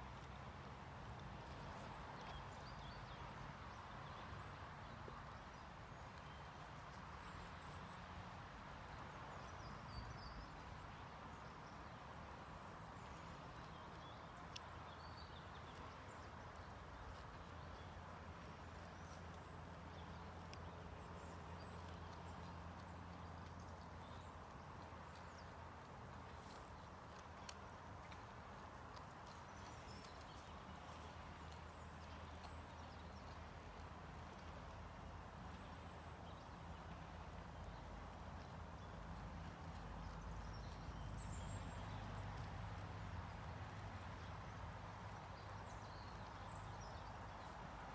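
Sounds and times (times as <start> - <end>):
animal tearing and chewing grass: 20.0 - 34.7.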